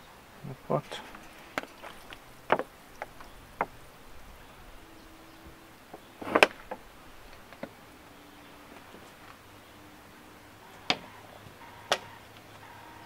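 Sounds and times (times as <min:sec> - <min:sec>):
light clicks and knocks: 0:00.9 - 0:04.0.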